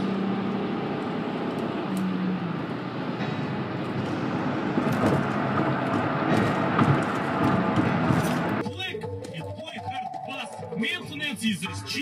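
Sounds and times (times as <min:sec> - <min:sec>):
road and tyre noise in car: 0:00.0 - 0:08.6.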